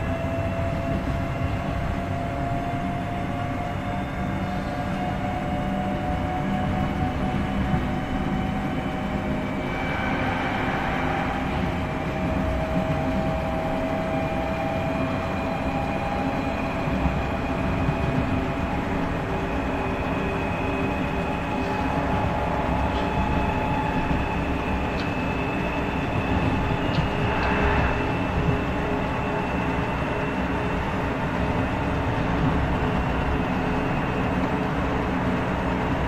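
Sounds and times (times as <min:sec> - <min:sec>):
train wheels rumbling on track: 0:00.0 - 0:36.0.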